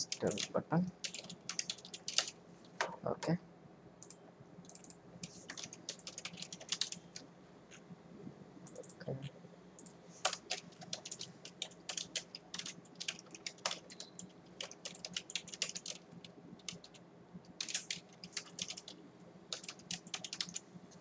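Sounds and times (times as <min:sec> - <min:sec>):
typing on computer keyboard: 0:00.0 - 0:02.9, 0:04.0 - 0:07.2, 0:09.8 - 0:20.6
faint steady hum: 0:00.0 - 0:21.0.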